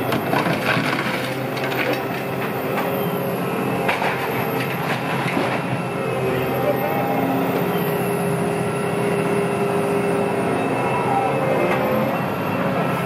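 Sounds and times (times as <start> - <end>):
mechanical rumble and grinding: 0.0 - 13.0
metallic squeals: 6.1 - 13.0.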